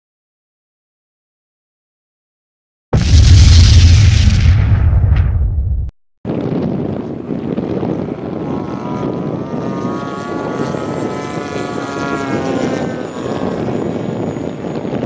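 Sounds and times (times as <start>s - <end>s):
model jet turbine rushing: 7.0s - 15.0s.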